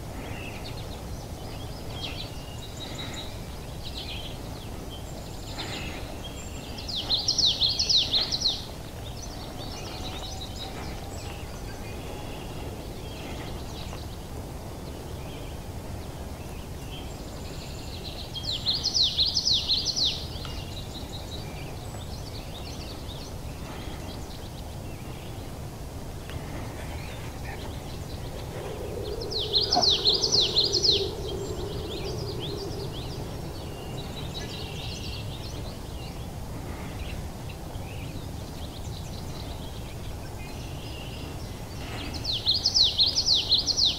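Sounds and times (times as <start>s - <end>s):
low outdoor background noise: 0.0s - 43.9s
songbird singing: 0.0s - 43.9s.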